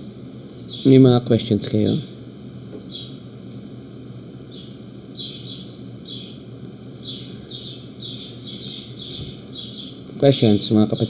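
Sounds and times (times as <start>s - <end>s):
bird chirping: 0.7s - 1.0s, 2.9s - 3.2s, 4.5s - 10.1s.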